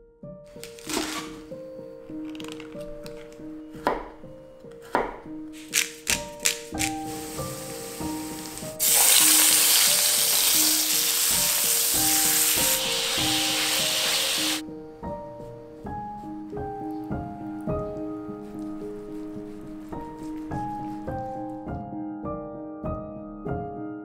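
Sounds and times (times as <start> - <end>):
light background music: 0.0 - 24.0
steak sizzling in a hot pan: 6.8 - 14.6.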